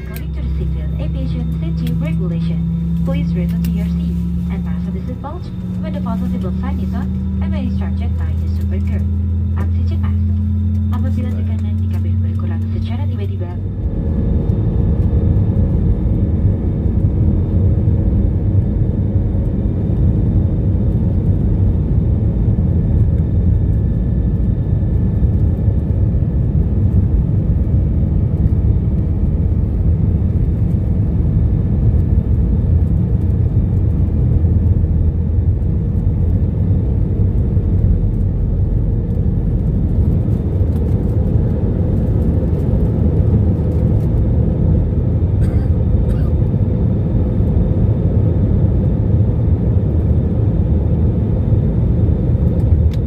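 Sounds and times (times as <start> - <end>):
jet engines rumbling in cabin: 0.0 - 53.0.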